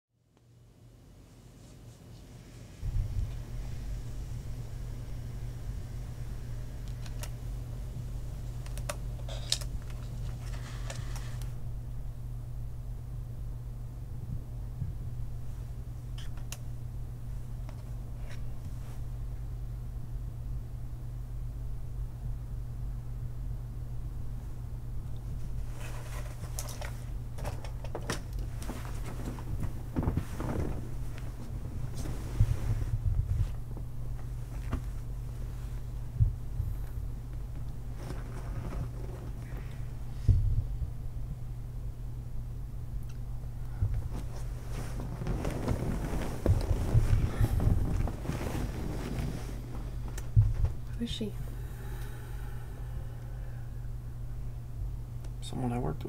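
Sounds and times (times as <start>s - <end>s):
steady low hum: 0.2s - 56.0s
bedding rustling: 25.3s - 41.4s, 43.5s - 51.3s.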